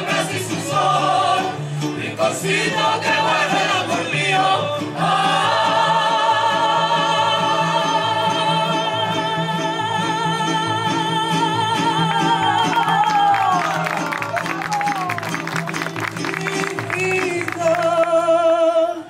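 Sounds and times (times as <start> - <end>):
woman singing with vibrato: 0.0 - 13.7
strummed guitars: 0.0 - 19.0.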